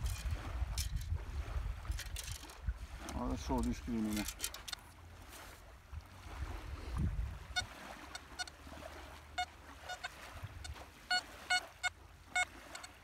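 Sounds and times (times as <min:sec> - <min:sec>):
metal detector beeps: 0:07.5 - 0:08.6, 0:09.3 - 0:13.0.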